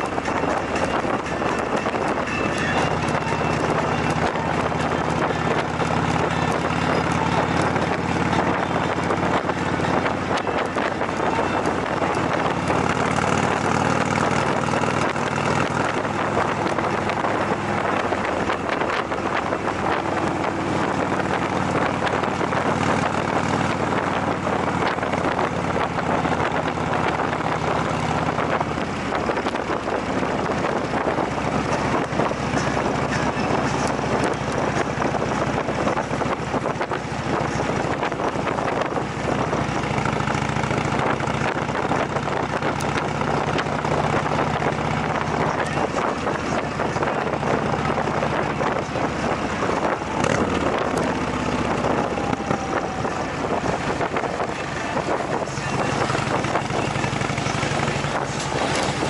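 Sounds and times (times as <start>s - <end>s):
motorcycle engine drone: 0.0s - 59.0s
wind rush on microphone: 0.0s - 59.0s.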